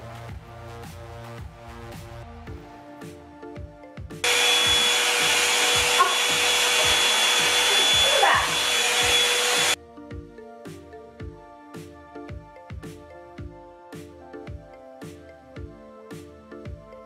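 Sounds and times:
light background music: 0:00.0 - 0:17.0
hair dryer blowing air: 0:04.2 - 0:09.8.

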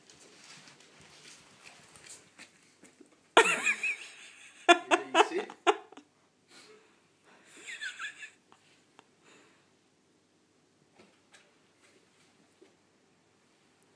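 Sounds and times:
person laughing: 0:03.4 - 0:06.1, 0:07.5 - 0:08.4.

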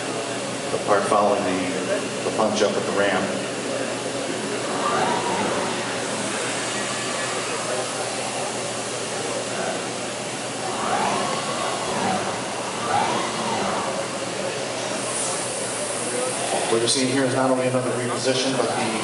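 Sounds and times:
rushing machine noise: 0:04.1 - 0:19.0
servo motors whining: 0:04.5 - 0:08.8, 0:10.5 - 0:15.8.

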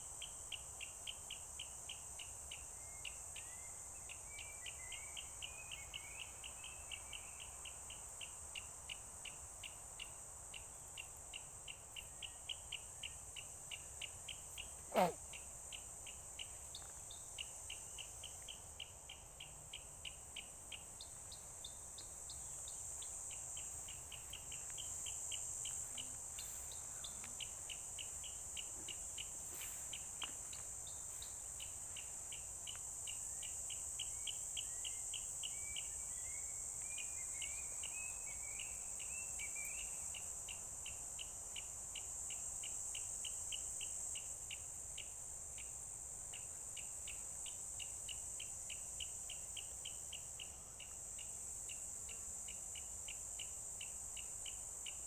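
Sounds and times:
short sharp insect chirps: 0:10.0 - 0:40.2
insects shrilling: 0:14.5 - 0:15.4.

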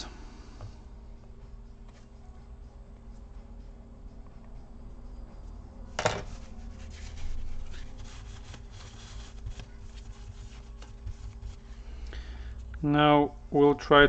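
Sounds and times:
hands rubbing laptop chassis: 0:06.2 - 0:11.8.

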